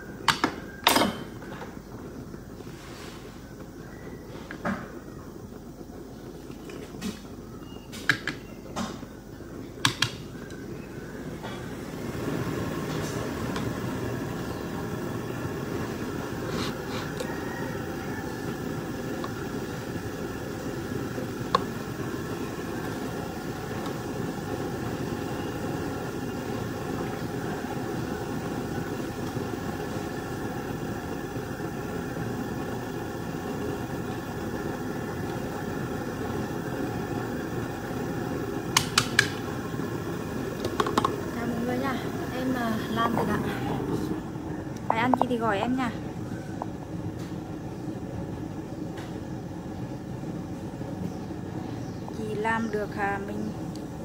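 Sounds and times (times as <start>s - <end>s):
electric motor hum: 10.8s - 46.9s.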